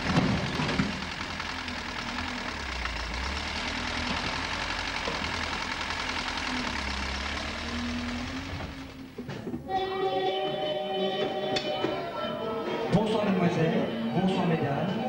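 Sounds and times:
excavator diesel engine running: 0.0s - 9.6s.

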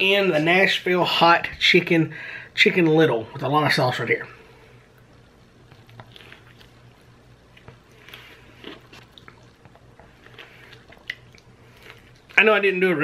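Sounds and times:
steady low hum: 0.0s - 13.0s
person chewing: 4.8s - 12.5s.

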